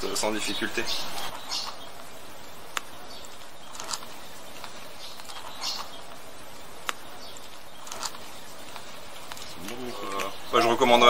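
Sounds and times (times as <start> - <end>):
sharp clicks: 2.7 - 6.2, 6.8 - 10.4.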